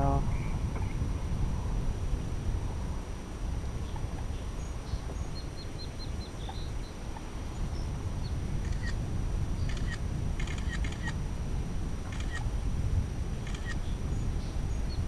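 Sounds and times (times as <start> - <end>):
steady low rumble: 0.0 - 15.0
small birds chirping: 3.7 - 11.2, 13.6 - 15.0.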